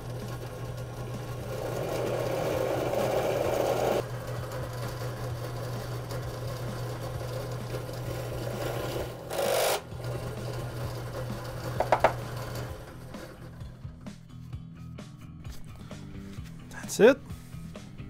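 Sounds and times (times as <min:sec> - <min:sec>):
drill press motor running: 0:00.0 - 0:14.0
loud scraping noise: 0:01.4 - 0:04.0
drill bit cutting metal panel: 0:08.0 - 0:09.9.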